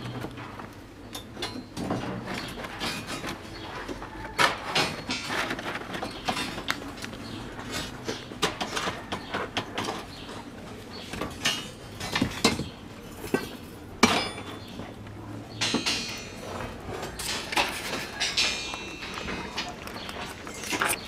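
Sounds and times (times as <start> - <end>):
steel rebar clinking and scraping: 0.0 - 3.7, 4.3 - 7.0, 11.2 - 21.0.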